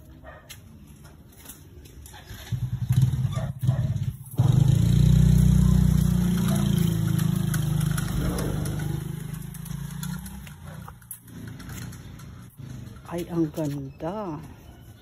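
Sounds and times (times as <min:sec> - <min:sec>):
vehicle engine running: 0:02.0 - 0:13.7.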